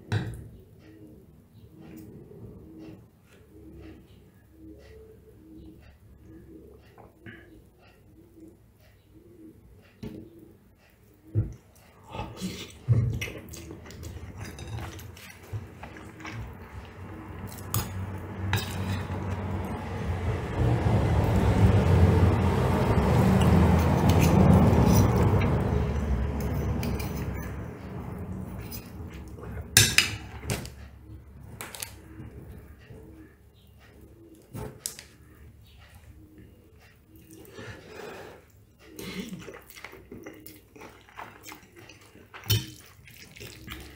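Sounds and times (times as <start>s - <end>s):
cutlery scraping a ceramic plate: 13.9s - 16.1s, 17.5s - 19.3s, 26.4s - 27.6s
low rumble: 16.8s - 29.8s.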